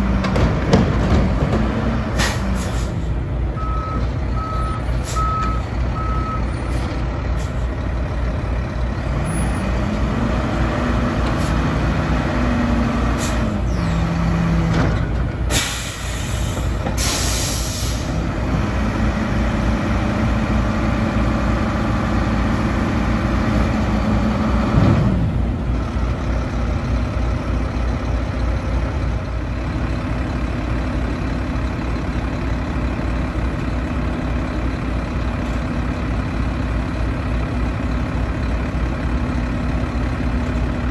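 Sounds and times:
diesel truck engine revving: 0:00.0 - 0:40.9
air brakes hissing: 0:02.2 - 0:03.2, 0:13.2 - 0:13.6, 0:15.5 - 0:18.2.

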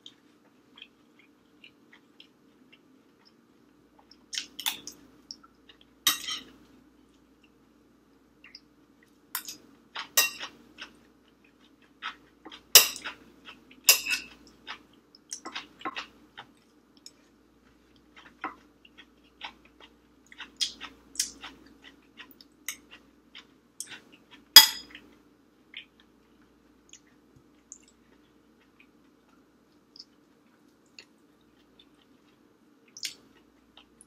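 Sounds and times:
chewing and mouth sounds: 0:00.0 - 0:06.0, 0:09.9 - 0:34.0
metal spoon clinking on glass bowl: 0:06.1 - 0:06.5, 0:13.9 - 0:14.4, 0:24.6 - 0:24.9.

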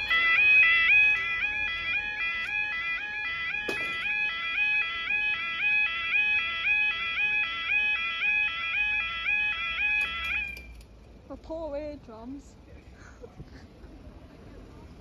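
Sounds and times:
level crossing two-tone alarm: 0:00.0 - 0:10.7.

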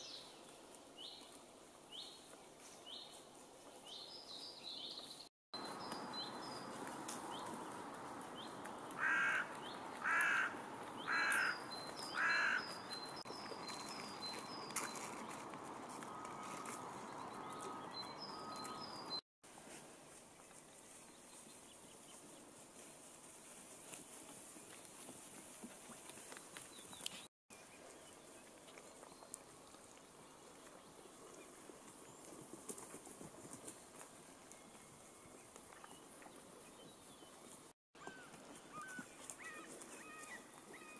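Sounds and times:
crow cawing: 0:09.0 - 0:11.6, 0:12.2 - 0:12.7
sheep drinking water: 0:27.9 - 0:32.6.

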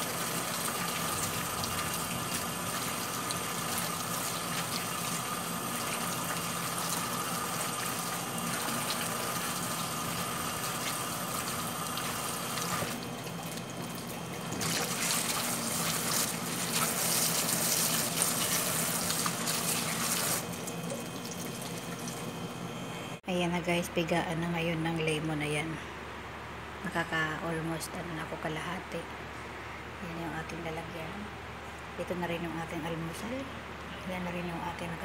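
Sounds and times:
water splashing over fruit: 0:00.0 - 0:20.4
faucet running into sink: 0:00.0 - 0:22.2.

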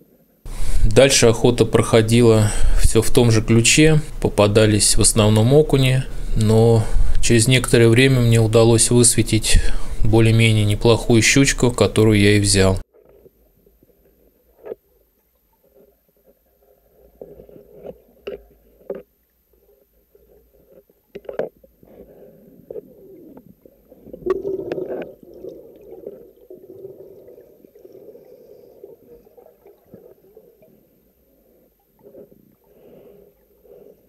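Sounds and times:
underwater bubbling and gurgling: 0:13.0 - 0:34.0.

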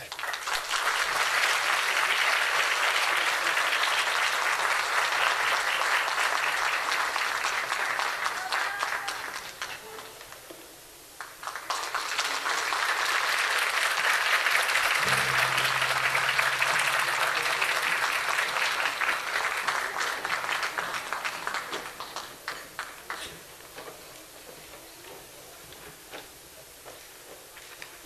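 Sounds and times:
audience applauding: 0:00.0 - 0:10.3, 0:11.2 - 0:23.3.

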